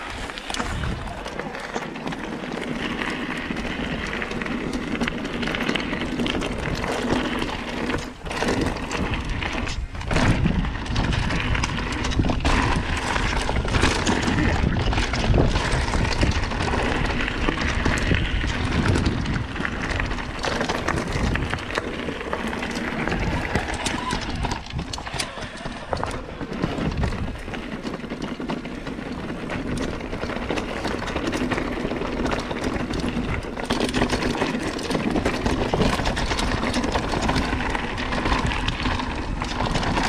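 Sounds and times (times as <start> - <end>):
wind rushing over microphone: 0.0 - 1.4, 8.0 - 27.6
bike rattling and knocking: 0.0 - 40.0
tyres rolling on dirt and rock: 0.0 - 40.0.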